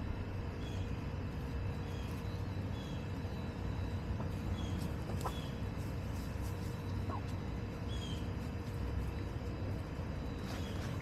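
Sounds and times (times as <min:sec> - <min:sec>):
small birds chirping: 0:00.0 - 0:11.0
steady low rumble: 0:00.0 - 0:11.0
hens clucking: 0:03.6 - 0:08.9.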